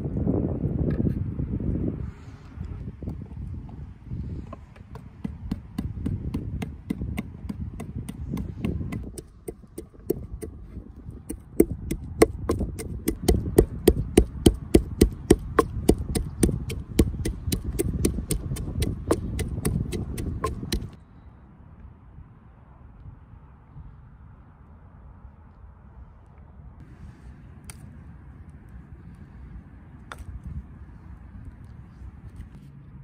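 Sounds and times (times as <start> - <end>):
steady low rumble: 0.0 - 22.2
knife chopping on cutting board: 11.6 - 20.9.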